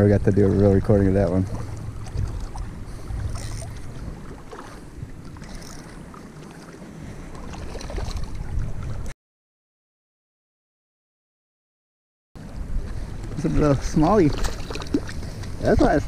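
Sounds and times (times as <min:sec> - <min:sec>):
light water splashing: 0:00.0 - 0:09.1, 0:12.5 - 0:16.0
wind buffeting the microphone: 0:00.0 - 0:09.1, 0:12.4 - 0:16.0.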